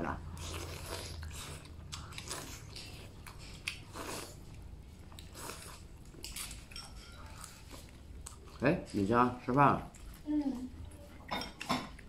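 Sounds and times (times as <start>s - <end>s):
person chewing and eating: 0.0s - 12.0s.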